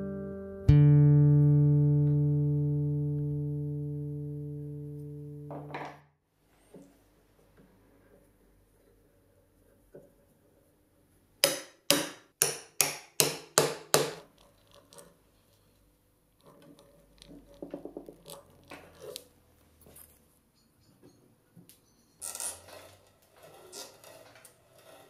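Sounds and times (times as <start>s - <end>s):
hand brace boring into wood: 22.2s - 25.0s.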